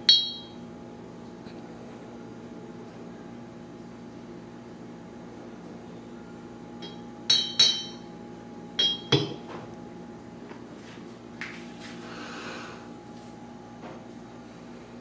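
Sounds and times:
glass stopper clinking: 6.8 - 8.0, 8.8 - 9.4.

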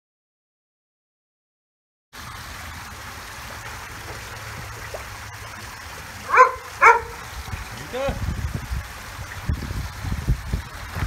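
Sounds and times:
water rushing in pool: 2.2 - 11.0.

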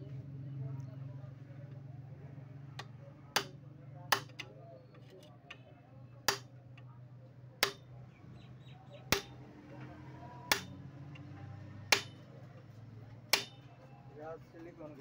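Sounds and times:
hammer tapping: 3.4 - 4.5, 7.6 - 7.9, 9.1 - 9.4, 10.5 - 10.8, 11.9 - 12.3, 13.3 - 13.7.

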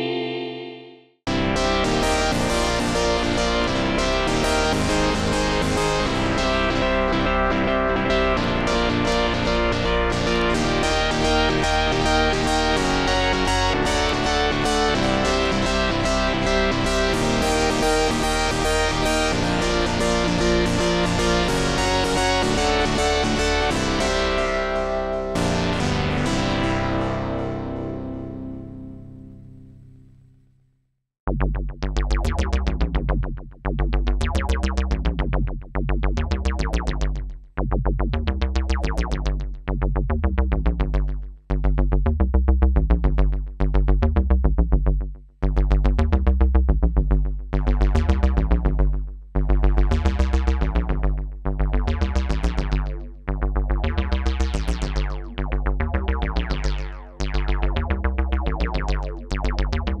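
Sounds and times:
synthesizer arpeggio: 0.0 - 30.0, 51.8 - 60.0
deep synth bass: 1.3 - 30.2, 31.3 - 60.0.

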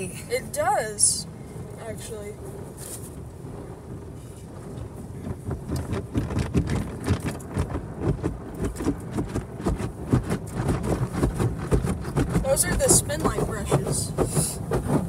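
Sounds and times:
steady low rumble: 0.0 - 15.0
car wash brushes slapping: 5.1 - 15.0.

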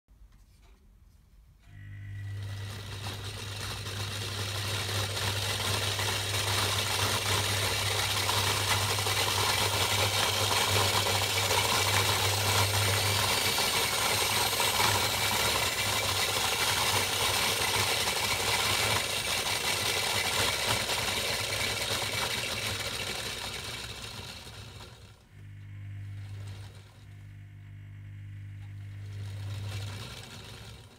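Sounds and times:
faint motor whine: 0.4 - 30.9
electric motor hum: 1.6 - 30.9
toy washing machine drum rattling: 2.5 - 25.2.

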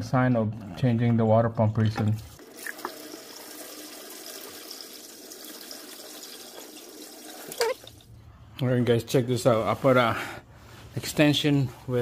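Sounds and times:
coolant draining into a pan: 2.4 - 8.1.

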